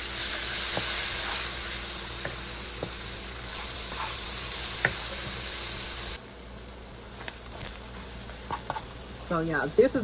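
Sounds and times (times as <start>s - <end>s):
vegetables sizzling in oil: 0.0s - 10.0s
wooden spoon scraping a pan: 2.2s - 5.4s.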